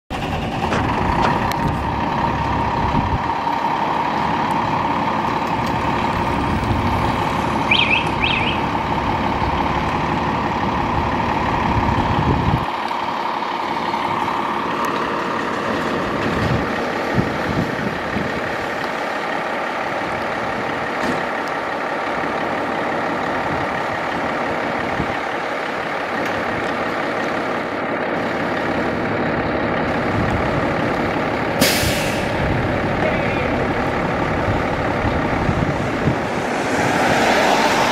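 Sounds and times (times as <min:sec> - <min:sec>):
fire engine diesel idling: 0:00.1 - 0:36.7
steady high warning tone: 0:05.6 - 0:08.9.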